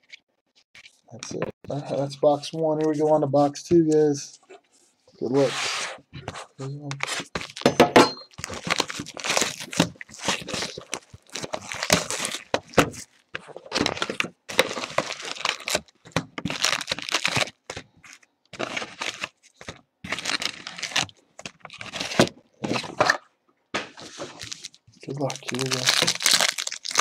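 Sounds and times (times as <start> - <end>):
card packs handled: 6.3 - 23.2, 23.9 - 27.0
plastic shrink wrap crinkling: 8.3 - 22.9, 24.0 - 27.0.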